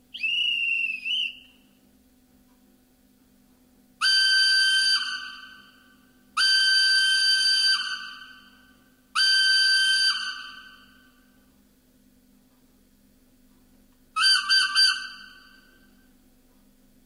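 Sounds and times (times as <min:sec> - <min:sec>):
steam whistle blasts: 0:00.2 - 0:01.6, 0:04.0 - 0:11.2, 0:14.2 - 0:16.0.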